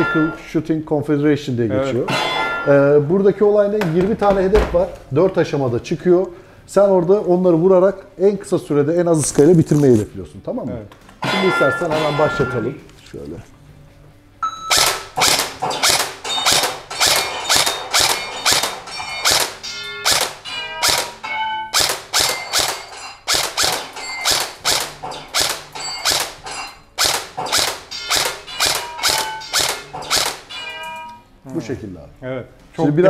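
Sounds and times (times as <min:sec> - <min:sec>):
short ringing tones: 0:00.0 - 0:00.5, 0:24.0 - 0:24.4, 0:28.0 - 0:31.3
airsoft rifle shots: 0:14.7 - 0:26.4, 0:27.0 - 0:30.6.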